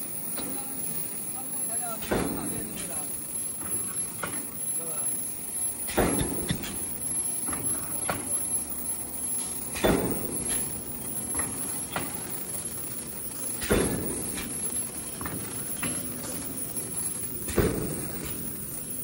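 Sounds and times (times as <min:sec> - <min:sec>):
machine humming: 0:00.0 - 0:19.0
heavy machine clunk: 0:05.8 - 0:08.4, 0:09.3 - 0:19.0.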